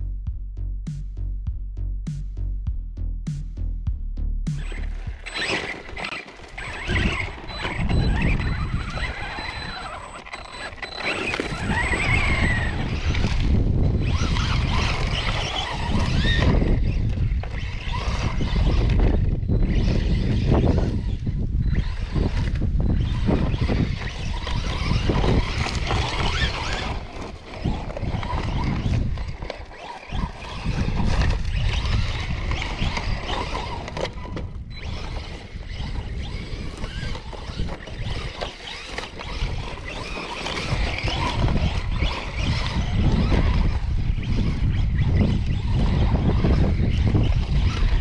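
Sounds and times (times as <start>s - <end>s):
heavy low rumble: 0.0s - 5.4s, 11.6s - 17.5s
rc truck motor and tyres on sand: 4.5s - 48.0s.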